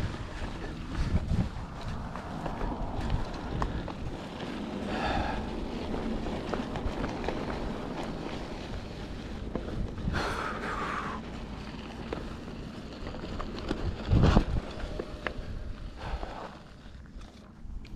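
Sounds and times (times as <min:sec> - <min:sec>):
wind on the microphone: 0:00.0 - 0:11.2, 0:13.6 - 0:16.5
bike clicks and rattles: 0:00.0 - 0:17.9
bike tyre rumble on dirt: 0:00.0 - 0:17.9.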